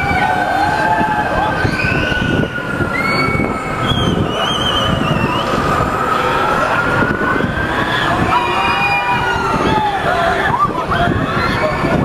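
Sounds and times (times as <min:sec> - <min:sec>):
low rumble of ride and crowd: 0:00.0 - 0:12.0.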